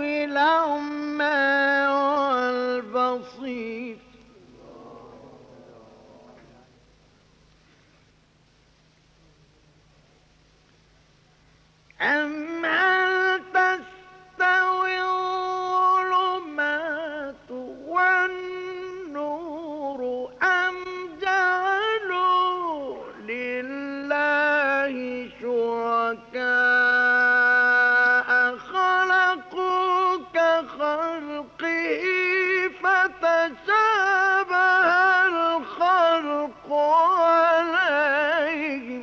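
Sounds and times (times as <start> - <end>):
faint hum: 0.0 - 39.0
man chanting melodically: 12.0 - 39.0.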